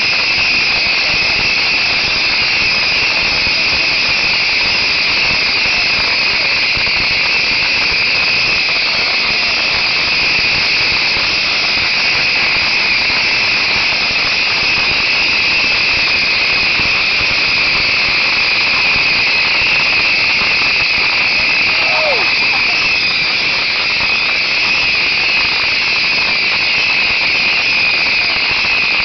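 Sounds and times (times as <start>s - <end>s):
fireworks crackling hiss: 0.0s - 29.0s.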